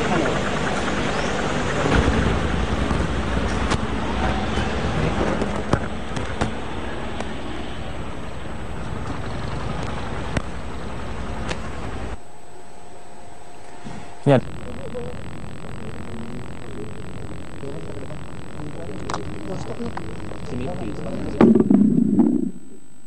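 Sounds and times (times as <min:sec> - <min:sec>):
road and traffic noise: 0:00.0 - 0:12.2
vehicle engine rumble: 0:00.0 - 0:12.2
steady quiet hum: 0:00.0 - 0:23.0
sharp clicks: 0:15.3 - 0:22.4.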